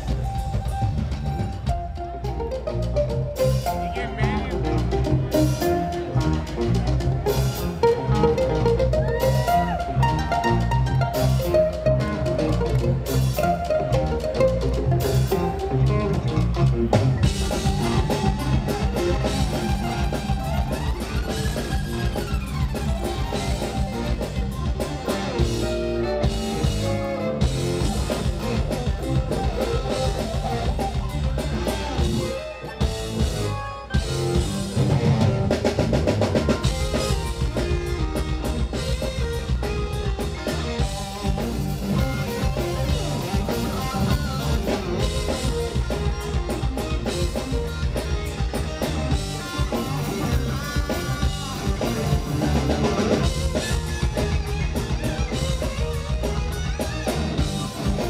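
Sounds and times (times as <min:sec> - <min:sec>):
drum kit: 0:00.0 - 0:58.0
live rock band playing: 0:00.0 - 0:58.0
violin: 0:00.0 - 0:58.0.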